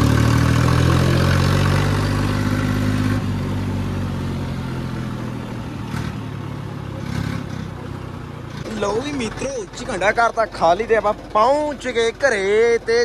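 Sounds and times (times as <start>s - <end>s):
tractor diesel engine droning: 0.0s - 13.0s.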